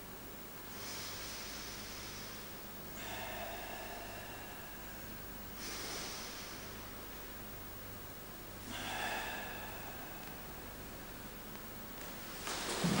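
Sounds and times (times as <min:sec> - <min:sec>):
forceful hissing breaths: 0:00.7 - 0:07.2, 0:08.5 - 0:11.5.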